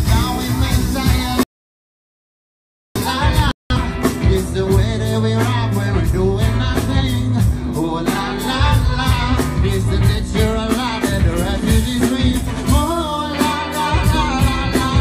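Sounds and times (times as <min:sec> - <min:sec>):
live band music: 0:00.0 - 0:01.5, 0:03.0 - 0:15.0
man singing into a microphone: 0:00.0 - 0:01.5, 0:03.0 - 0:15.0.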